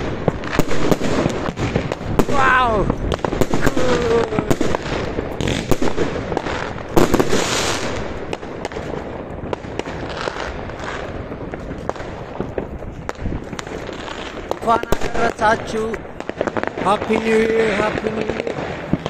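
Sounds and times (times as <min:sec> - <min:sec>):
fireworks banging and crackling: 0:00.0 - 0:19.0.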